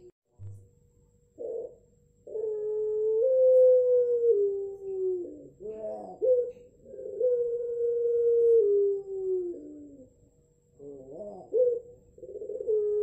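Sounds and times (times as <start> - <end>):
dove cooing: 1.4 - 13.0.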